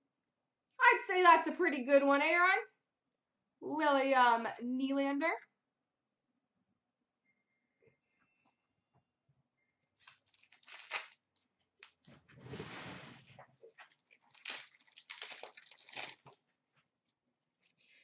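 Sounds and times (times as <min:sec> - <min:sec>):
wrapper crackling rustles: 0:10.0 - 0:12.1, 0:13.8 - 0:16.5
wrapper tearing: 0:10.0 - 0:12.1, 0:13.9 - 0:16.4.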